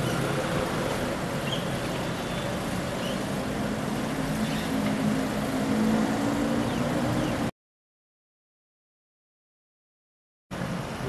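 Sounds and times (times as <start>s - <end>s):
road noise: 0.0s - 7.5s, 10.5s - 11.0s.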